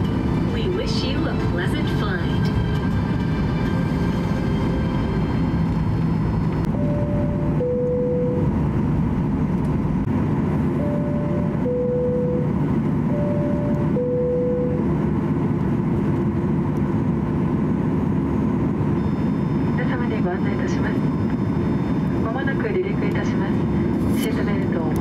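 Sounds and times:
jet engines and cabin air: 0.0 - 25.0
two-tone cabin chime: 6.7 - 8.5, 10.8 - 12.5.

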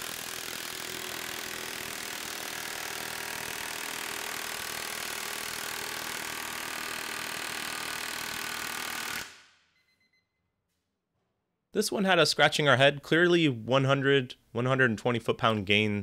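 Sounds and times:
impact wrench hammering: 0.0 - 9.4.

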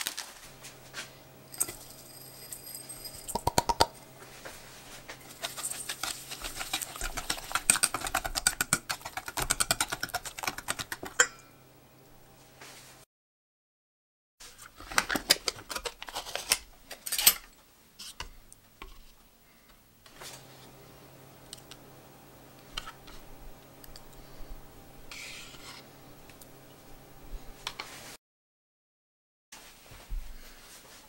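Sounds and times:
faint steady hum: 0.2 - 13.0, 15.3 - 28.1
spoon scraping metal bowl: 1.5 - 11.5, 25.1 - 25.9.

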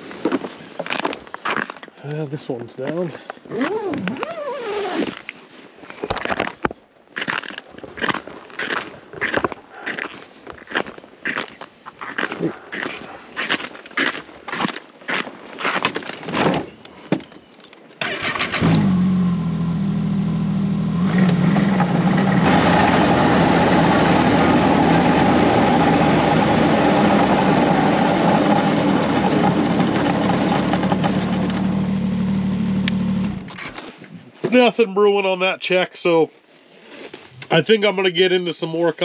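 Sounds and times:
footsteps crunching on ice: 0.2 - 4.2, 4.9 - 16.3
snowmobile engine: 18.0 - 33.6.

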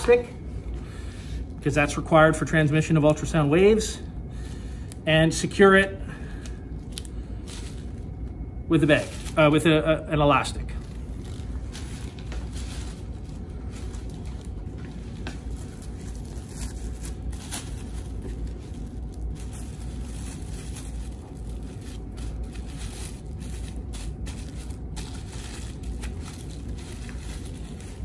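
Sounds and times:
steady low hum: 0.0 - 28.0
plastic bag crinkling: 6.4 - 9.7, 10.4 - 28.0.

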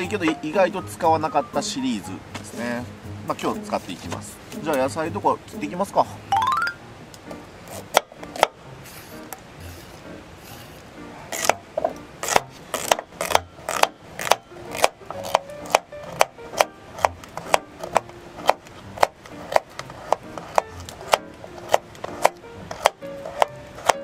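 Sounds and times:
knife chopping on wooden board: 7.7 - 8.6, 11.4 - 24.0.

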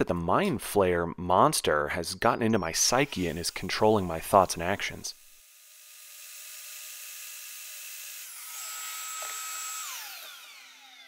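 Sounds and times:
circular saw cutting plywood: 2.8 - 11.0.

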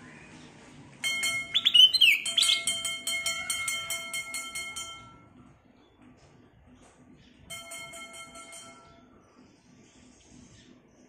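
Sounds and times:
fast pulsing ringing: 1.0 - 5.4, 7.5 - 9.2
bird singing whistled phrase: 1.5 - 2.7.

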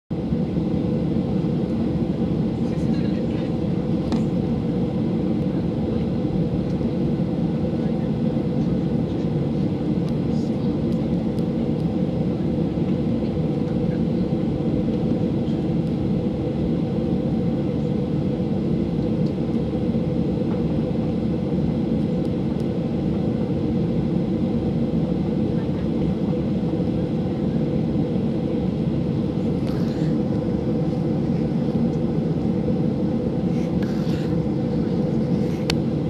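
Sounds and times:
jet cabin roar on takeoff: 0.1 - 36.0.

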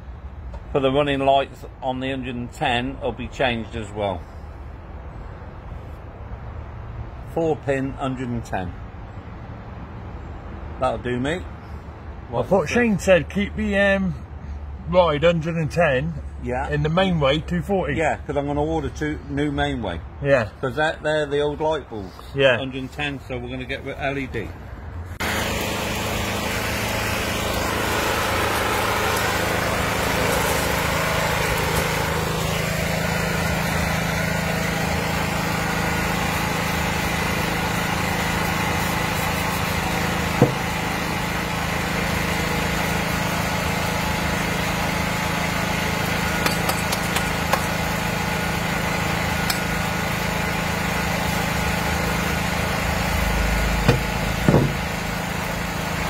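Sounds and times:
portable generator running: 25.2 - 56.0.

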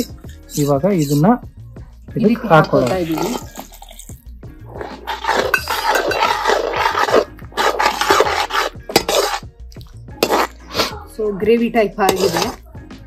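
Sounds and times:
spatula scraping in a pan: 0.0 - 1.4, 2.3 - 3.6, 4.6 - 9.5, 10.2 - 11.1, 12.0 - 12.7.

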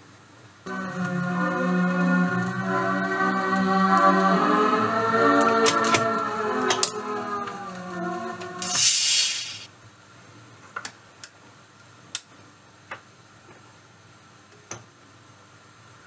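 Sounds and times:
record music playing: 0.7 - 9.0
burst of hiss: 8.6 - 9.7.

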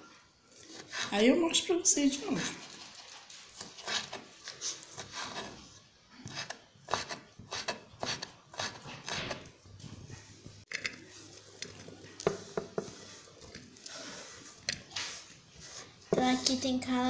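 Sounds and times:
food scraped into frying pan: 2.4 - 5.7.

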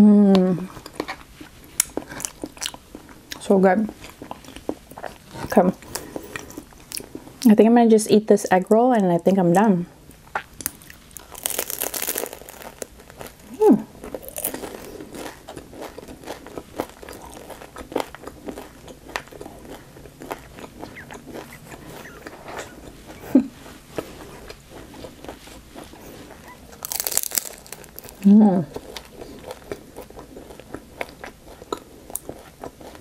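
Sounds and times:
crunchy chewing: 0.7 - 7.5, 10.1 - 33.0
crunchy bite: 10.3 - 22.8, 26.8 - 28.3.

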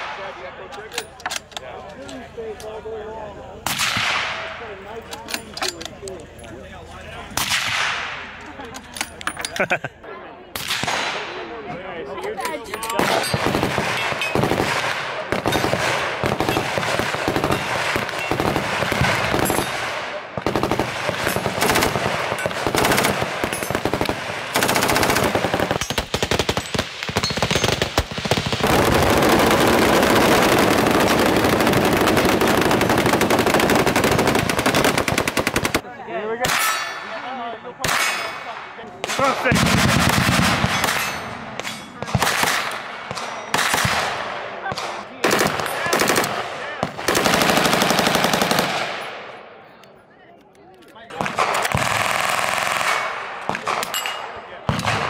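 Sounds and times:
machine-gun fire: 13.0 - 35.8, 39.0 - 41.2, 42.0 - 49.3, 51.2 - 53.8.

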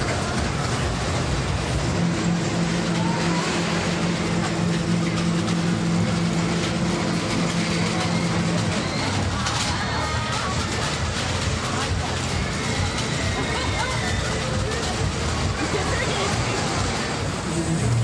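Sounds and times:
fairground noise: 0.0 - 18.0
roller coaster cars rolling: 0.0 - 18.0.

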